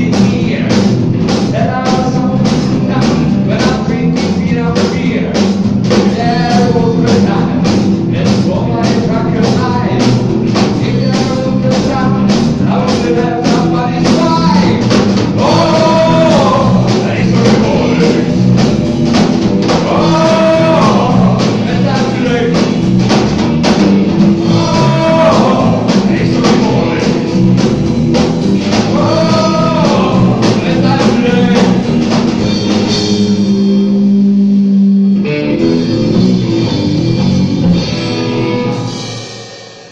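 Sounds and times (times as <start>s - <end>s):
man singing lead vocal: 0.0s - 18.7s, 19.7s - 23.0s, 24.3s - 27.8s, 28.5s - 32.0s
electric guitar: 0.0s - 39.4s
bass guitar: 0.0s - 39.9s
drum kit: 0.0s - 39.9s.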